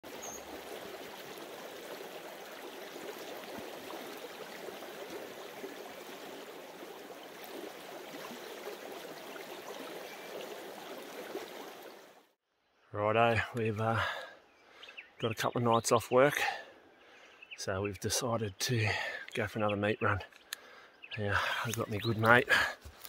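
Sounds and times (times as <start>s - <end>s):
creek water over rocks: 0.0s - 12.4s, 18.2s - 23.0s.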